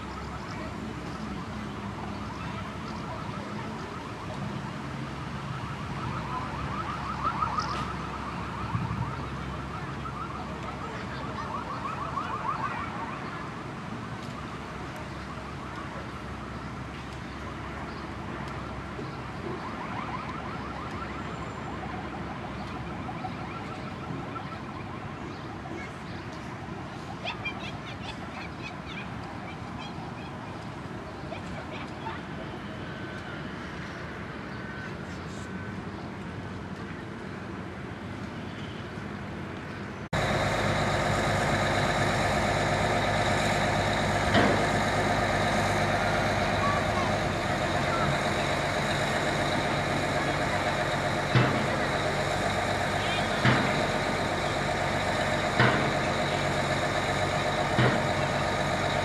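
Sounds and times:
distant car alarm warbling: 5.5s - 13.6s, 40.2s - 59.0s
mechanical engine hum: 40.2s - 59.0s
steady low rumble: 40.2s - 59.0s.

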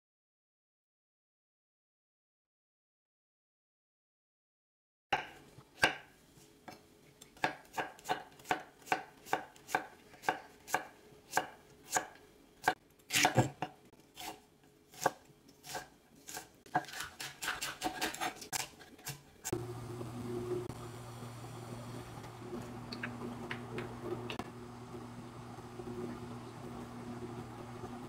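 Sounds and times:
knife chopping on wooden board: 7.4s - 19.2s.

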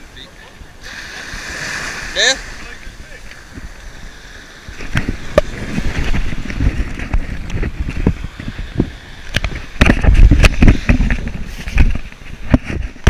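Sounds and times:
wind rumbling on microphone: 0.0s - 13.0s
knocks and thumps: 9.3s - 13.0s.

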